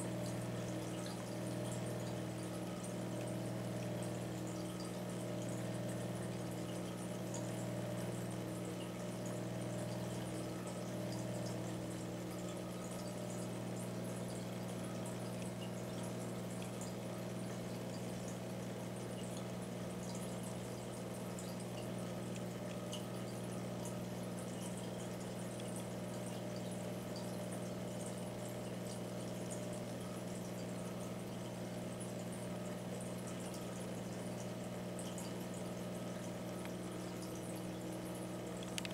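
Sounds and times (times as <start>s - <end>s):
aquarium pump humming: 0.0s - 38.9s
water bubbling and fizzing: 0.0s - 38.9s.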